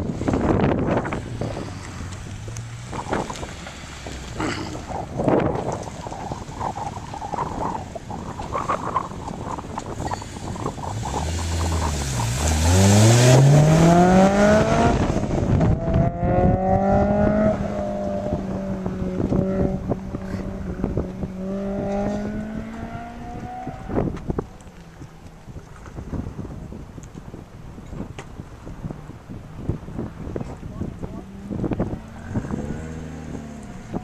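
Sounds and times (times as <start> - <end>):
car engine revving: 0.0 - 7.8, 8.4 - 24.2, 31.1 - 34.0
wind buffeting microphone: 0.0 - 34.0.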